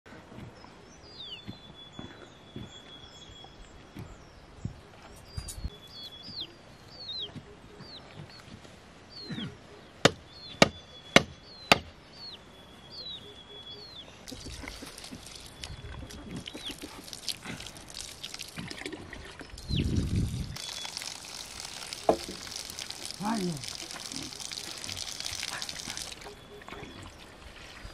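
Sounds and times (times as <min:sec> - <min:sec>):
bird chirping: 0:00.4 - 0:17.4, 0:19.2 - 0:27.9
hose water pouring into bucket: 0:14.3 - 0:26.4.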